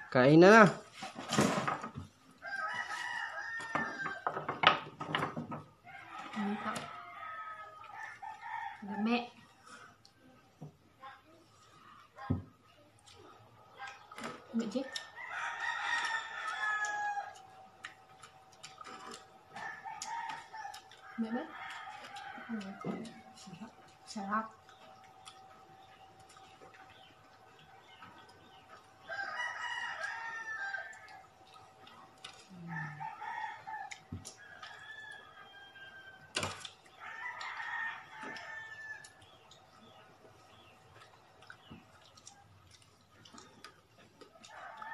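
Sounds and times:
rooster crowing: 0:02.4 - 0:04.6, 0:05.8 - 0:09.2, 0:14.9 - 0:17.6, 0:19.5 - 0:23.3, 0:29.1 - 0:31.3, 0:32.5 - 0:39.2, 0:44.4 - 0:44.9.

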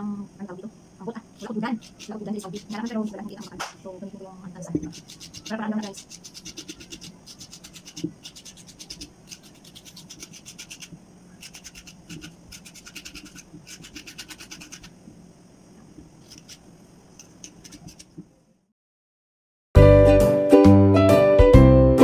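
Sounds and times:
bottle cap scraping coconut meat: 0:01.4 - 0:03.7, 0:04.8 - 0:15.0, 0:16.2 - 0:18.2.

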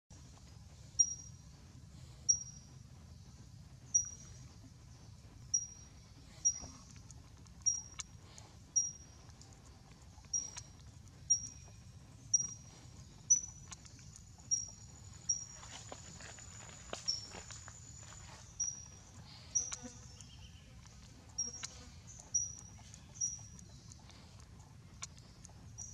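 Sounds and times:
forest background noise: 0:00.1 - 0:25.9
bird chirping: 0:00.9 - 0:25.9.

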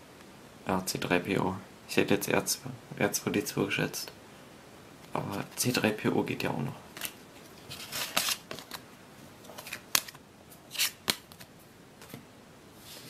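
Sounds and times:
cards snapping and sliding on table: 0:09.5 - 0:12.2.

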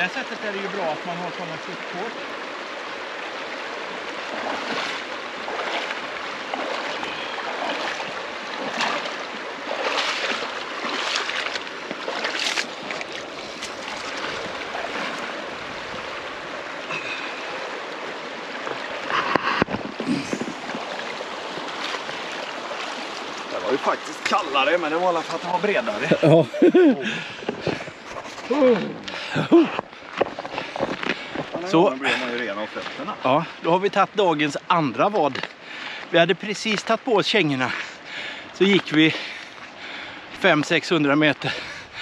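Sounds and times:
stream water rushing: 0:00.0 - 0:42.0
legs splashing through water: 0:00.8 - 0:33.6.

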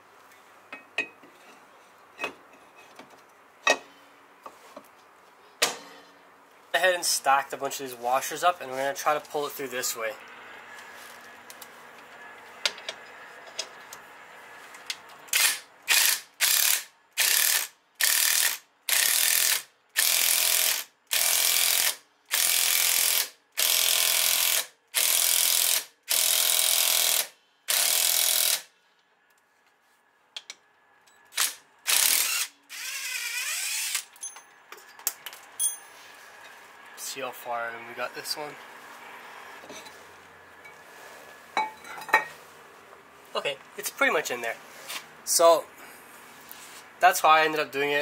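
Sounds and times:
ratchet wrench clicking: 0:15.3 - 0:28.6.

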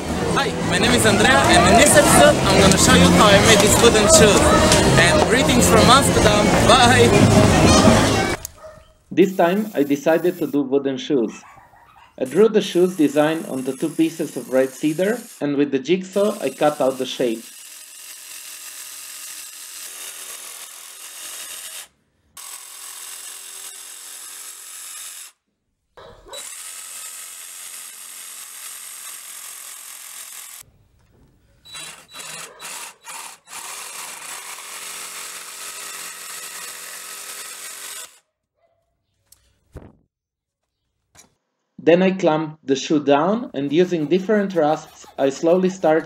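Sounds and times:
electric jigsaw cutting wood: 0:00.8 - 0:08.5, 0:12.8 - 0:15.4, 0:16.1 - 0:25.4, 0:26.3 - 0:30.7, 0:31.7 - 0:38.2.

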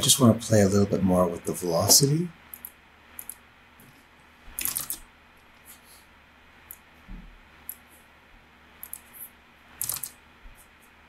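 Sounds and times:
computer mouse clicks: 0:02.5 - 0:03.4, 0:04.6 - 0:05.0, 0:07.6 - 0:07.8, 0:08.8 - 0:09.2, 0:09.8 - 0:10.2
keyboard keystrokes: 0:04.6 - 0:05.0, 0:09.8 - 0:10.1.

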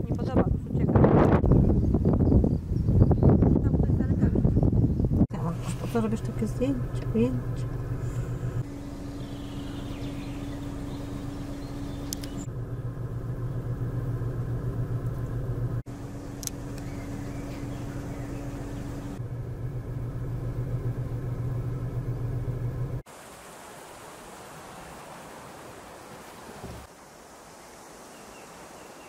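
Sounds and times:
vehicle engine humming: 0:05.2 - 0:23.1.

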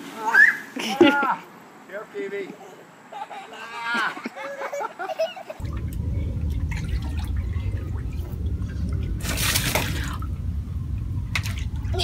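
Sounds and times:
steady low rumble: 0:05.6 - 0:12.0
water splashing in paddling pool: 0:05.6 - 0:12.0.

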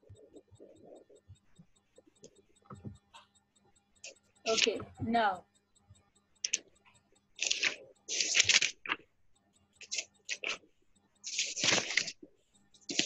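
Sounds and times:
paper rustling and crackling: 0:07.4 - 0:09.0, 0:09.8 - 0:10.6, 0:11.3 - 0:12.2.

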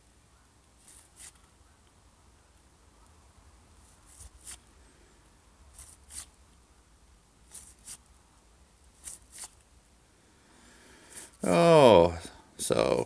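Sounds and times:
cards sliding with paper swishes: 0:00.8 - 0:01.4, 0:03.9 - 0:04.7, 0:05.8 - 0:06.4, 0:07.5 - 0:08.0, 0:09.0 - 0:09.6.

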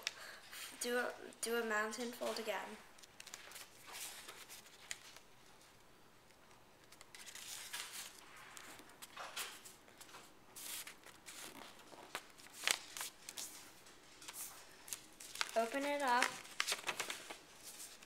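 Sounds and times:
paper crinkling: 0:03.0 - 0:18.0
paper rustling on wooden table: 0:03.2 - 0:05.3, 0:06.9 - 0:18.0.

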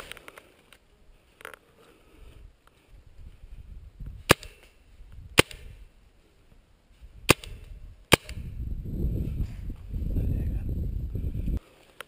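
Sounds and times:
paintball marker shots: 0:04.3 - 0:04.6, 0:05.4 - 0:05.7, 0:07.3 - 0:08.5.

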